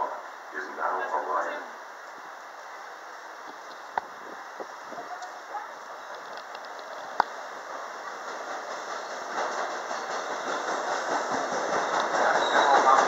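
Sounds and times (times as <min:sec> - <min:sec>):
train wheels rumbling on rails: 0:03.5 - 0:13.0.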